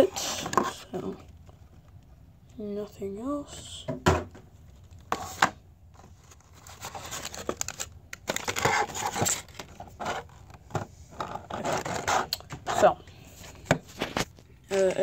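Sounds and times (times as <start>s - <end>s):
plastic packaging crinkling: 6.1s - 10.6s.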